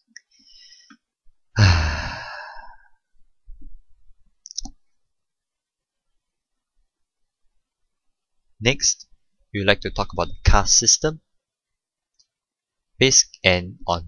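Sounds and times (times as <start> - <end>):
person breathing in: 1.6 - 2.8
person sighing heavily: 1.6 - 2.9.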